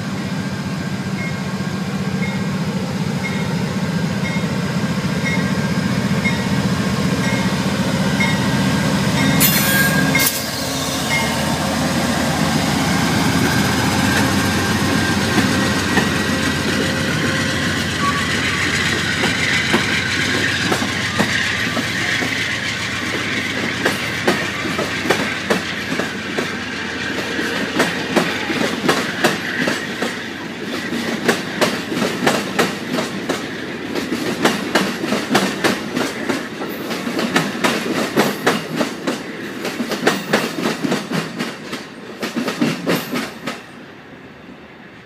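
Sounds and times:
train rolling roar: 0.0s - 45.0s
train wheels clacking over joints: 12.8s - 43.7s.

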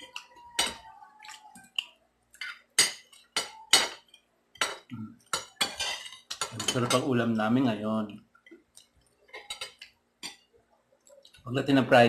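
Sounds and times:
cutlery clinking on plates: 0.0s - 7.2s, 9.3s - 10.5s.

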